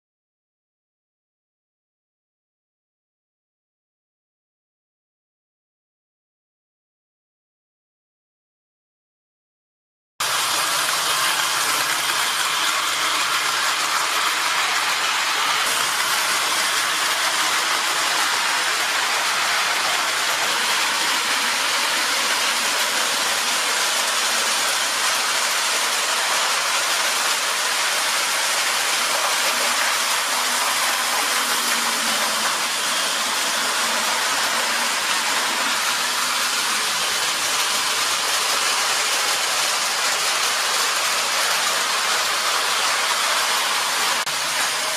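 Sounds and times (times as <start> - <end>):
model trains running on metal track: 10.2 - 44.9.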